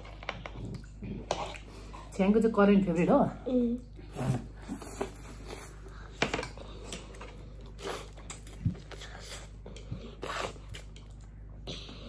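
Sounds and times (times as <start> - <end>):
noodles slurped and chewed: 4.0 - 12.0.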